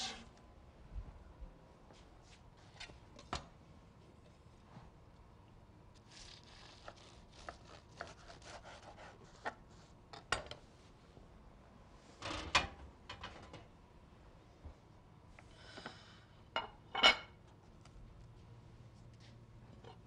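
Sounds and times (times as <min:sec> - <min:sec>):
knife crackling through pastry: 0:06.0 - 0:10.0.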